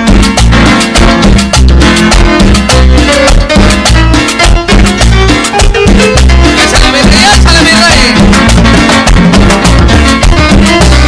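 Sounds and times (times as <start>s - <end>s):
tropical dance band: 0.0s - 11.0s.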